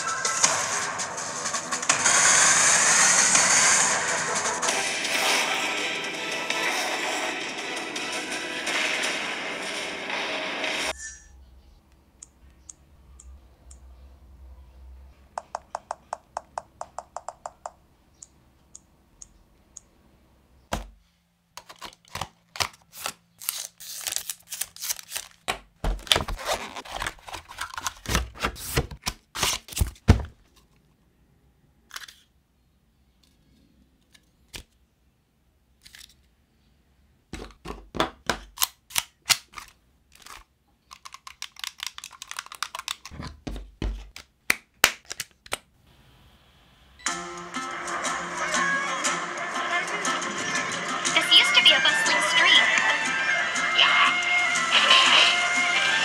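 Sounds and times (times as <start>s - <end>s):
small evenly spaced clicks: 16.8s - 19.9s.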